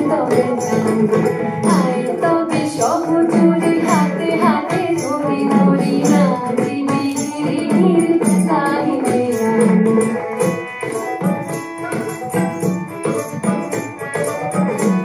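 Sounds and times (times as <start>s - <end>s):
person singing: 0.0s - 10.7s
drum beat: 0.0s - 15.0s
jingling percussion: 0.0s - 15.0s.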